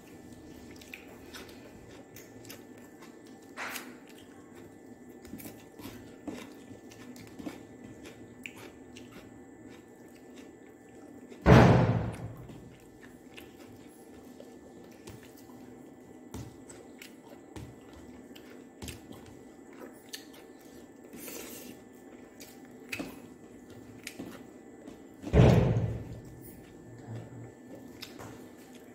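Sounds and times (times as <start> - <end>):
chewing: 0.0 - 11.4, 12.1 - 25.2, 26.0 - 28.9
loud thump: 11.5 - 12.5, 25.3 - 26.1.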